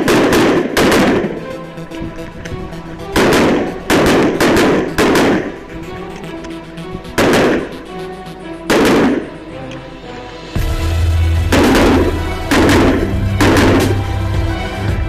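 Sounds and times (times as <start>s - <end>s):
pistol shots: 0.0s - 1.4s
background music: 0.0s - 15.0s.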